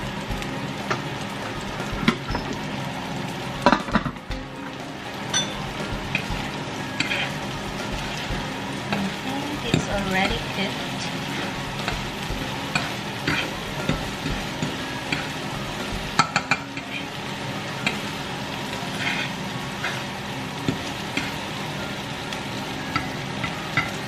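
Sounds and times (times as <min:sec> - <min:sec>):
food sizzling in frying pan: 0:00.0 - 0:24.0
utensil stirring and scraping: 0:07.0 - 0:07.5, 0:12.7 - 0:14.0, 0:18.8 - 0:20.0.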